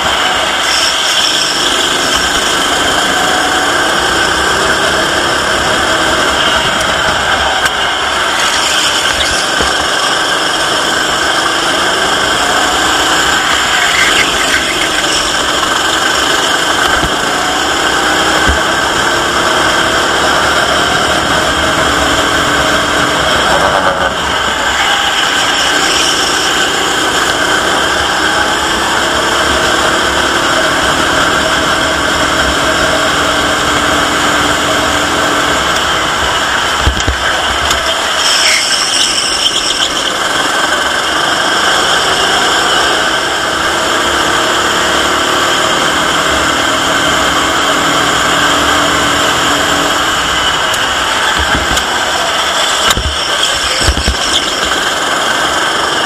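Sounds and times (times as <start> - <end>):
kart engine accelerating: 0.0 - 56.0.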